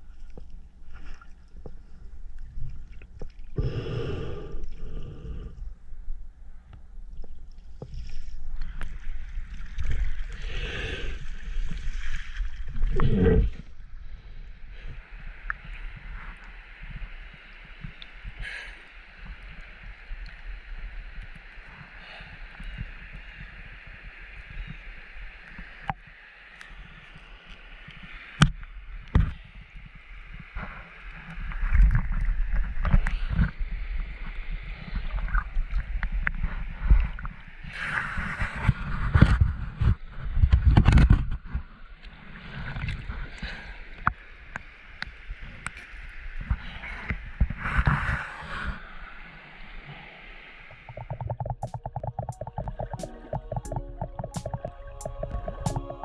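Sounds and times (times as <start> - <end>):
water sloshing and gurgling: 0.0 - 18.4, 49.9 - 56.0
muffled water sloshing: 50.7 - 56.0.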